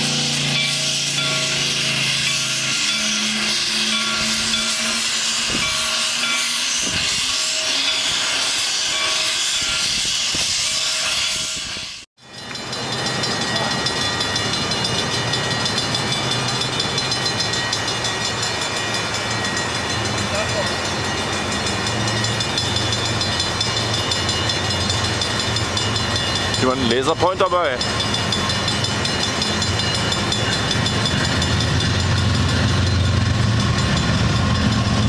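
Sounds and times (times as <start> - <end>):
steam hissing: 0.0 - 12.1
moving train running noise: 0.0 - 35.0
steam locomotive pulling train: 0.0 - 35.0.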